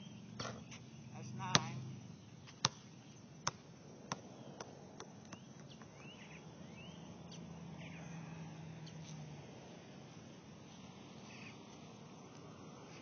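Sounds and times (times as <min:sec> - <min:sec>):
birds chirping: 0:00.0 - 0:09.3, 0:10.2 - 0:13.0
basketball bouncing: 0:01.5 - 0:01.8, 0:02.4 - 0:05.8.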